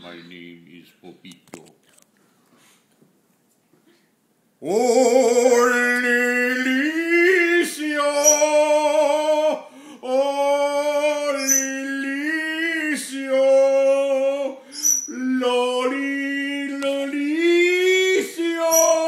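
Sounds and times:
man singing operatically: 4.6 - 19.0.

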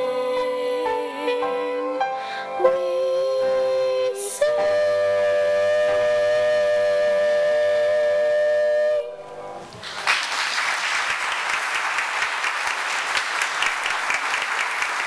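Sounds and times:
two voices singing with vibrato: 0.0 - 9.5
congregation applauding: 9.7 - 15.0.

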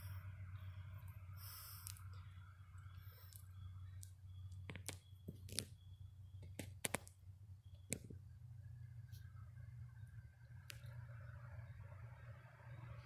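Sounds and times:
steady low hum: 0.0 - 13.0
faint sharp clicks: 2.8 - 5.8, 10.6 - 11.1.

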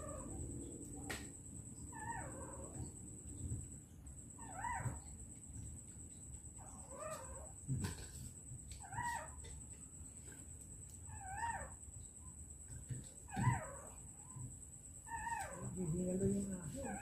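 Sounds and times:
puppy whining: 1.9 - 2.9, 4.4 - 5.1, 6.6 - 7.5, 8.8 - 9.5, 11.1 - 11.8, 13.2 - 14.0, 15.1 - 15.8.

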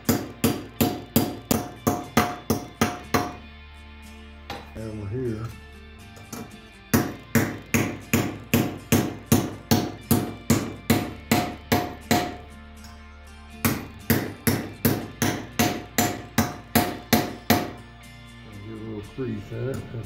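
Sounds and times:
hammer tapping metal: 0.0 - 3.4, 6.2 - 12.5, 13.6 - 17.8.

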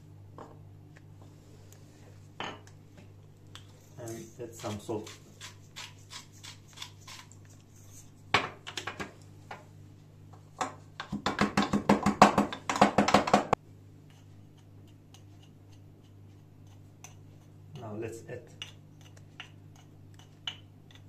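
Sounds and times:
pestle pounding in wooden mortar: 11.0 - 13.6.

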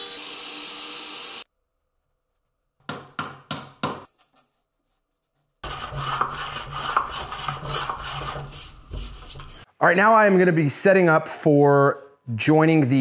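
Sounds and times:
rubbing and scraping on wood: 5.6 - 9.7.

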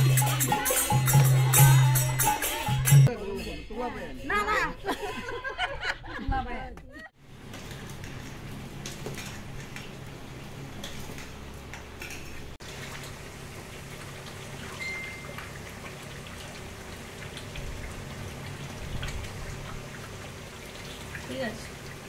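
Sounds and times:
water boiling in a pot: 7.2 - 22.0.

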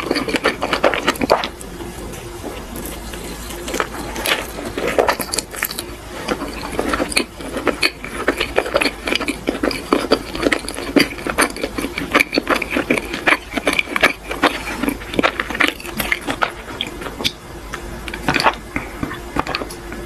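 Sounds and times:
person chewing food: 0.0 - 20.0.

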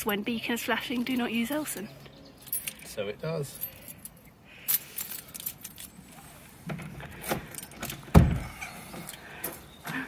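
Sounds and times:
keys jangling: 3.5 - 5.9.

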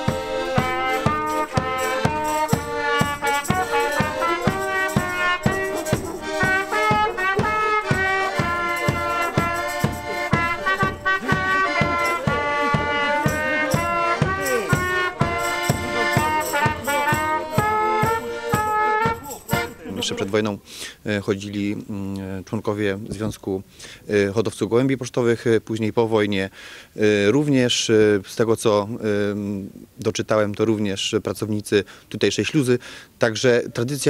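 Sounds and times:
accordion playing quick tune: 0.0 - 20.3
bass drum beat: 0.0 - 20.3.

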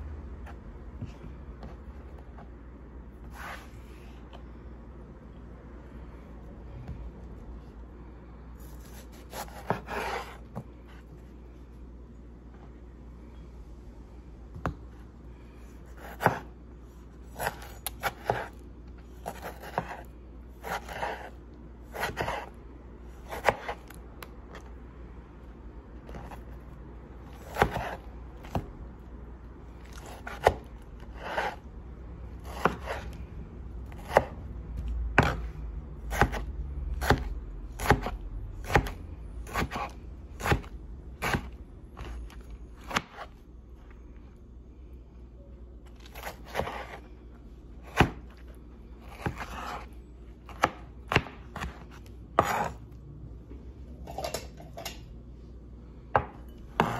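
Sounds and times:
knife chopping on plastic board: 8.8 - 10.7, 16.0 - 16.5, 17.4 - 18.6, 19.2 - 21.3, 21.9 - 22.6, 23.2 - 24.0, 27.3 - 28.7, 29.8 - 31.6, 32.4 - 33.1, 33.9 - 35.5, 36.1 - 42.2, 42.8 - 43.3, 46.0 - 47.0, 47.8 - 48.4, 49.0 - 49.9, 50.5 - 52.8, 56.1 - 56.9.

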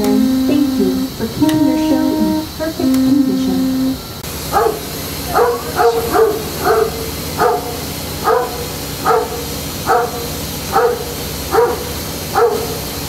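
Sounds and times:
dog barking: 4.5 - 12.8.

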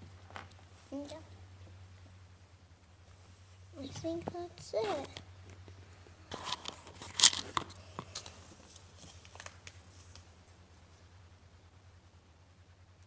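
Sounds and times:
plastic wrapper crinkling and tearing: 6.4 - 10.2.

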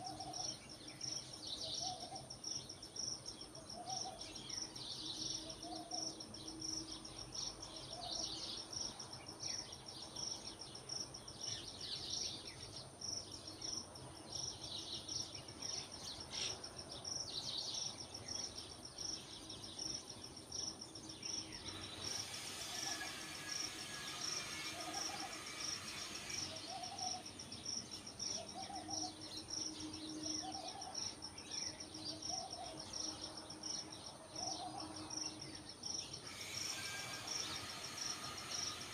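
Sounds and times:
high insect trill: 0.0 - 38.9
hiss: 21.7 - 27.2, 36.2 - 38.9
bird chirps: 23.8 - 38.9.

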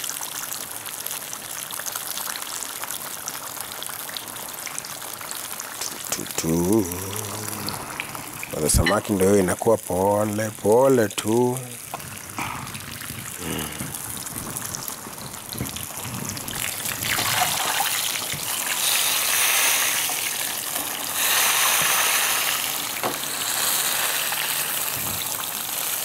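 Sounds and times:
fish sizzling in hot oil: 0.0 - 7.1, 8.0 - 26.0.

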